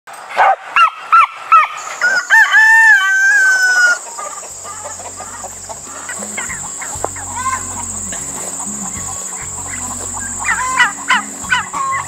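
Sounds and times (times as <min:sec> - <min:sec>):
rooster crowing: 0:02.0 - 0:12.0
soft clucking: 0:04.0 - 0:12.0.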